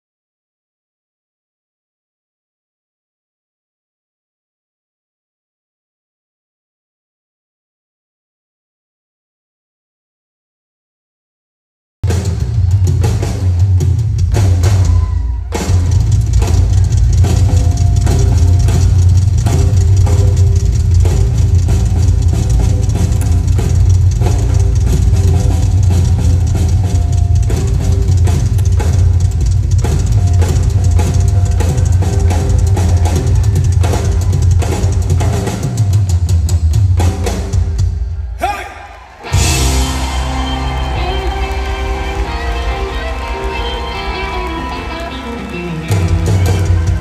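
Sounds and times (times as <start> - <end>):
loud drum kit: 12.0 - 47.0
heavy bass line: 12.1 - 35.9, 39.3 - 47.0
live band playing: 12.1 - 47.0
sustained guitar tones: 15.7 - 35.8, 39.3 - 47.0.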